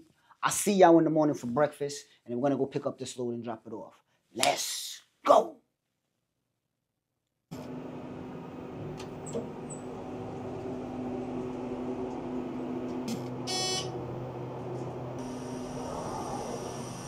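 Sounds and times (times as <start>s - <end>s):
elevator humming: 7.5s - 17.0s
elevator doors sliding open: 7.6s - 17.0s
short electronic beep: 13.5s - 14.0s.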